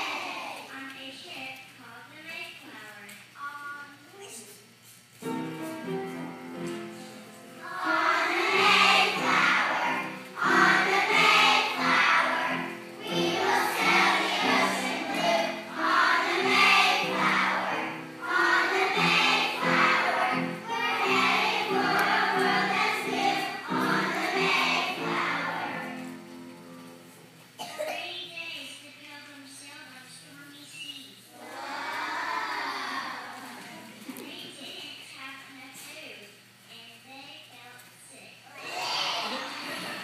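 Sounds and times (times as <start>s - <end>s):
children's choir singing: 0.0s - 0.6s, 7.6s - 26.1s, 31.3s - 33.9s, 38.6s - 40.0s
instrumental accompaniment: 5.2s - 27.3s.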